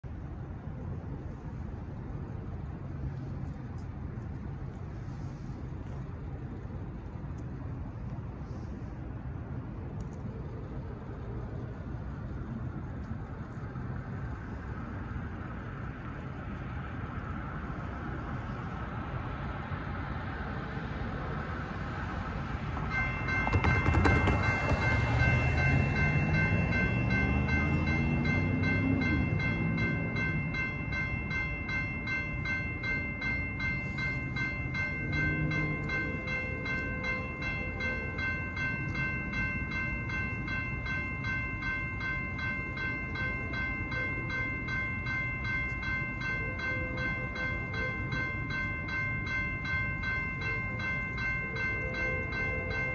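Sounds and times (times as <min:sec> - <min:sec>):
electronic crossing bell ringing: 0:22.8 - 0:52.9.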